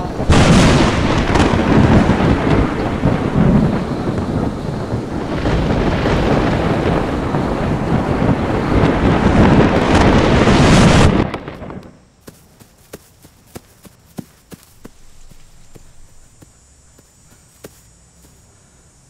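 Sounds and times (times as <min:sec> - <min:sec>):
rushing storm noise: 0:00.0 - 0:12.0
thunder rumbling: 0:00.0 - 0:12.0
faint light footsteps: 0:12.2 - 0:18.5.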